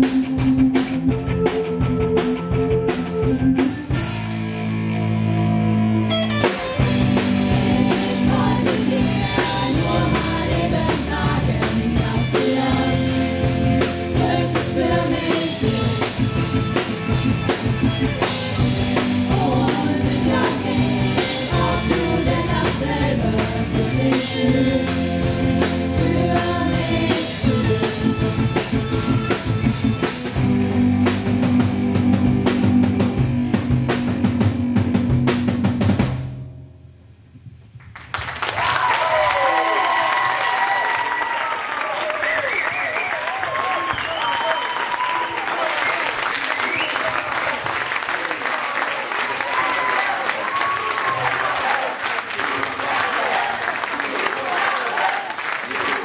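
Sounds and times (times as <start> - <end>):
electric guitar: 0.0 - 36.0
keyboard chords: 0.0 - 37.1
drum kit: 0.0 - 37.9
women singing: 7.4 - 15.9, 19.2 - 28.4.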